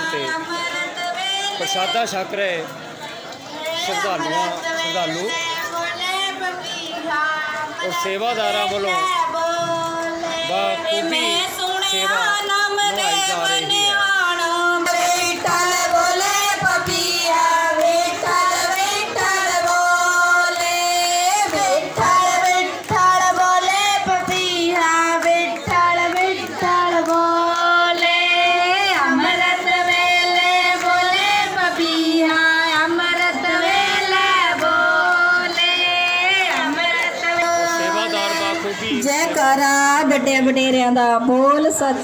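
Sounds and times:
girl singing through loudspeaker: 0.0 - 1.8, 3.6 - 40.2
group singing devotional song: 0.0 - 2.6, 3.7 - 39.9
hand-clapping: 14.8 - 32.1, 32.7 - 37.8.

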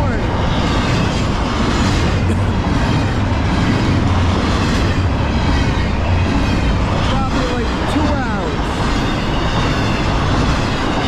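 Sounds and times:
freight train wheels rumbling: 0.0 - 11.0.

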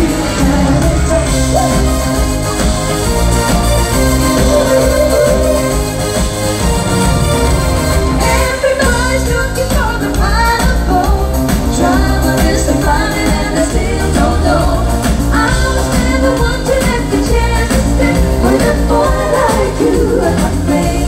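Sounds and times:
bass-heavy beat: 0.0 - 21.0
live pop music: 0.0 - 21.0
person singing: 4.2 - 5.9.

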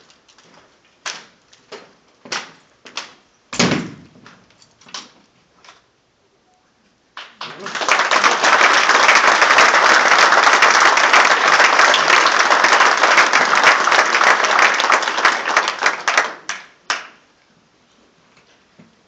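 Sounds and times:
audience applauding: 7.2 - 17.2.

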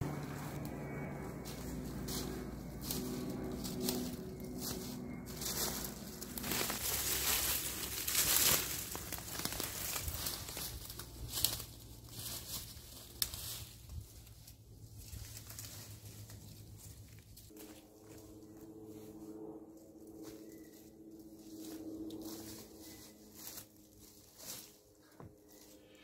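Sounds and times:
dry leaves rustling: 0.0 - 26.0
footsteps crunching through dry leaves: 0.0 - 26.0.

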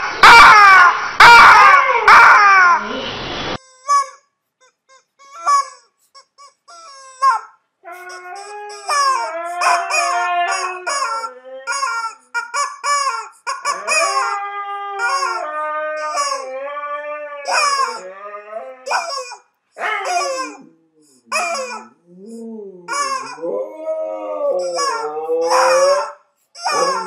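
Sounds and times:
rubber chicken toy squawking: 0.2 - 2.8, 3.6 - 16.6, 17.4 - 18.0, 18.6 - 23.6, 24.5 - 27.0
husky howling: 7.8 - 12.2, 13.6 - 19.2, 19.8 - 20.7, 21.4 - 27.0.

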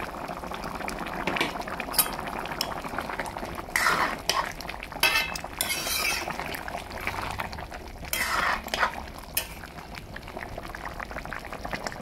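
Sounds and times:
curry bubbling in a pan: 0.0 - 12.0
ladle scraping and clinking pan: 1.9 - 2.2, 3.8 - 6.4, 8.1 - 9.6.

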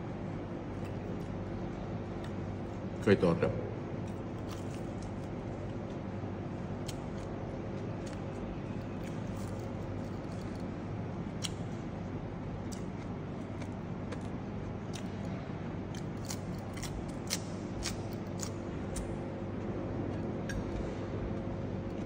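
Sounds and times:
steady background hum: 0.0 - 22.0
chewing raw vegetables: 4.0 - 6.1, 6.7 - 11.7, 12.6 - 19.1.

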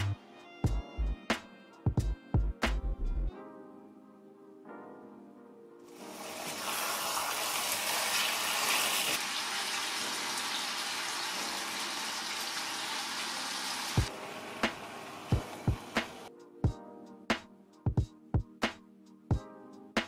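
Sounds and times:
soft background music: 0.0 - 20.0
water running and splashing: 6.0 - 16.2.

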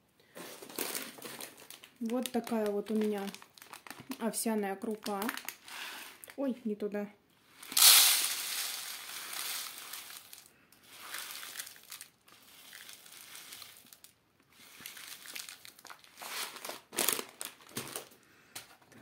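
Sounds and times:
plastic packet crinkling: 0.5 - 6.4, 7.6 - 18.2
oats pouring into plastic tray: 7.6 - 17.3.

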